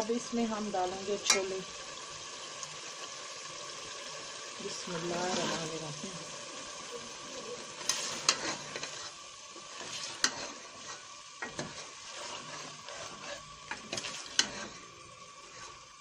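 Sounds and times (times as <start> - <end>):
curry sizzling in a pot: 0.0 - 16.0
ladle stirring: 7.1 - 16.0.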